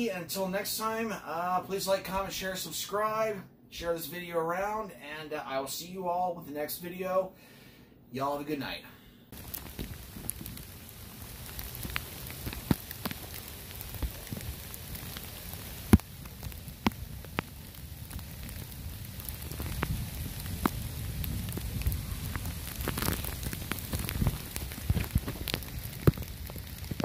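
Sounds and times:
faint low rumble: 0:09.2 - 0:27.0
sharp clicks and crackles: 0:09.4 - 0:27.0.

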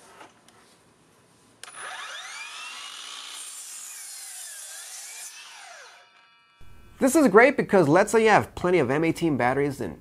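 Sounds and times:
miter saw cutting wood: 0:01.6 - 0:07.0.

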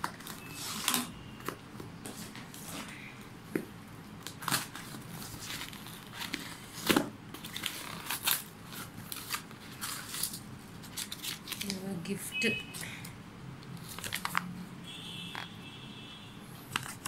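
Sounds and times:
cardboard package being torn open: 0:04.2 - 0:11.8.

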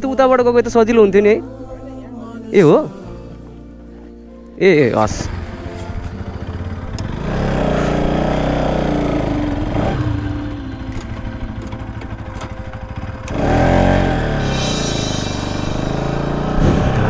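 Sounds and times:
motorcycle engine revving: 0:04.9 - 0:17.0.

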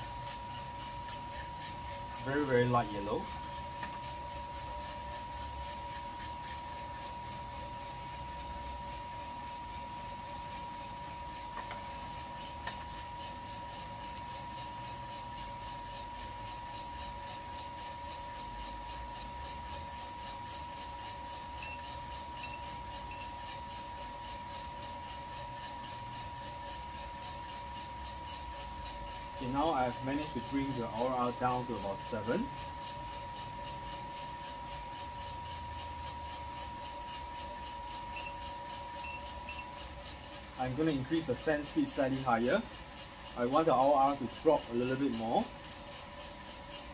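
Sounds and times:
coffee roaster whine and hum: 0:00.0 - 0:46.9
short high beeps: 0:39.0 - 0:39.7.

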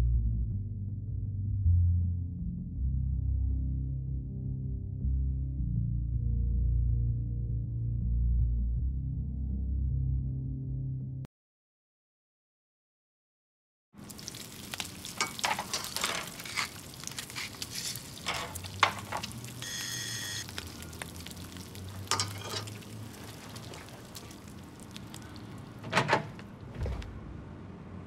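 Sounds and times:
food sizzling in frying pan: 0:14.0 - 0:25.1
spatula scraping pan: 0:15.1 - 0:19.8, 0:22.1 - 0:24.3
electronic doorbell ring: 0:19.6 - 0:20.4
door opening clicks: 0:25.8 - 0:27.2.

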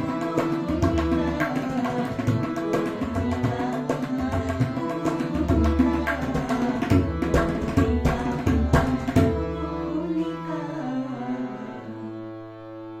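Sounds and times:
tabla strokes: 0:00.0 - 0:09.6
harmonium notes: 0:00.0 - 0:13.0.

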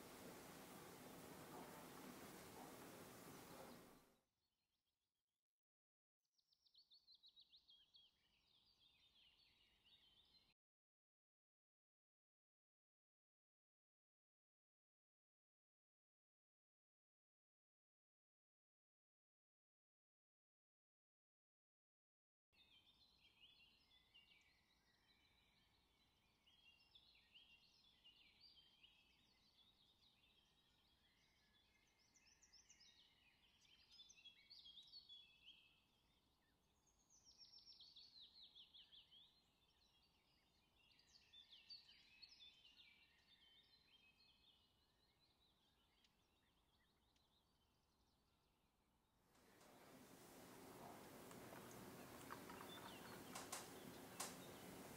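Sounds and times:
small birds chirping: 0:00.0 - 0:04.1, 0:06.7 - 0:10.5, 0:22.6 - 0:48.7, 0:49.4 - 0:54.9.

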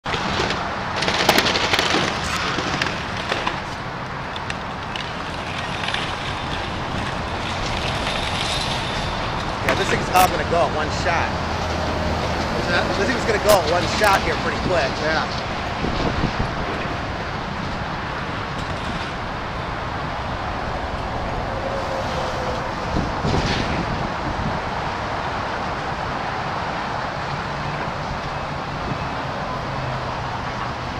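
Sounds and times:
cracking and clattering debris: 0:00.0 - 0:11.2, 0:17.6 - 0:19.6
steady rushing noise: 0:00.0 - 0:30.9
heavy machinery working rubble: 0:00.1 - 0:21.1
wind on microphone: 0:14.4 - 0:30.9.

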